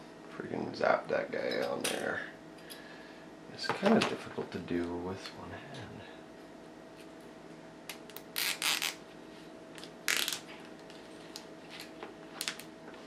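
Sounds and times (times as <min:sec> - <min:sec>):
zip tie rasping: 0:08.4 - 0:09.0.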